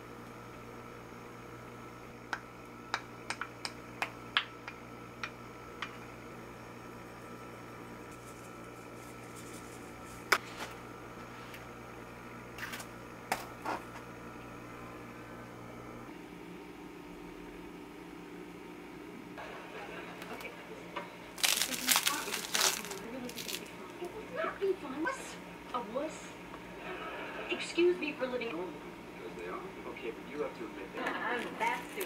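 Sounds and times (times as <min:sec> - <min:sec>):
steady low hum: 0:00.0 - 0:32.0
shaker being shaken: 0:08.1 - 0:10.3.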